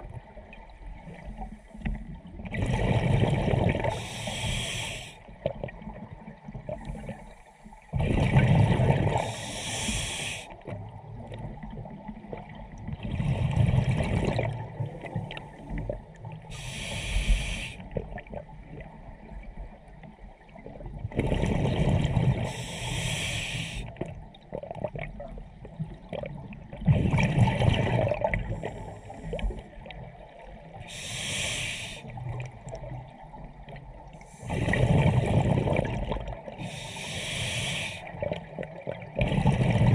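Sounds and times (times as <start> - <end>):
exhaled bubbles gurgling: 0.0 - 39.9
regulator breathing hiss: 3.9 - 5.2, 9.2 - 10.6, 16.5 - 17.8, 22.4 - 23.9, 30.8 - 32.1, 36.6 - 38.1.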